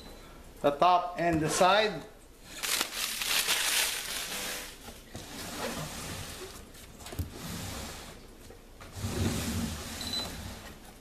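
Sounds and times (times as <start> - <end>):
plastic film peeling: 2.5 - 4.8
plastic rustling: 2.5 - 4.8.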